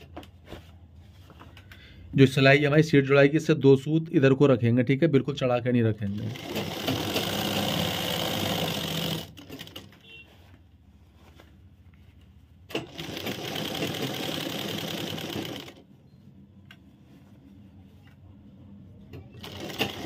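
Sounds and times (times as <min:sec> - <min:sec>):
sewing machine stitching: 0:06.1 - 0:09.9, 0:12.7 - 0:15.8, 0:19.1 - 0:20.0.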